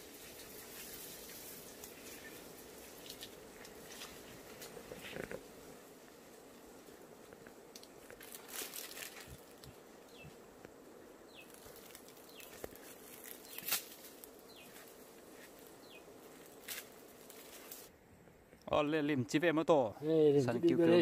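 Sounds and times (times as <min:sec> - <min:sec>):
branches and leaves rustling: 0:00.0 - 0:18.6
faint insect buzz: 0:00.0 - 0:18.6
branch snapping: 0:07.4 - 0:09.8, 0:11.4 - 0:14.8, 0:16.5 - 0:17.9.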